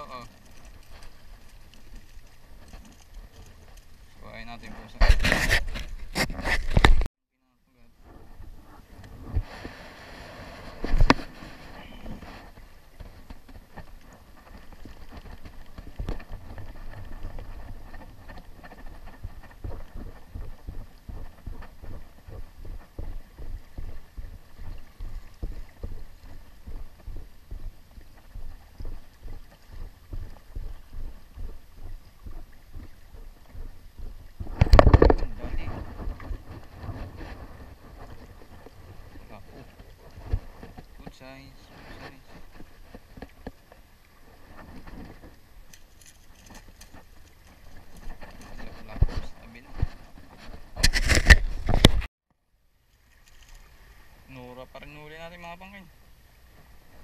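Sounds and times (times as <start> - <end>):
water against rocks: 0.0 - 7.1, 7.8 - 52.1, 52.8 - 57.0
wind on microphone: 8.0 - 13.6, 14.2 - 43.5.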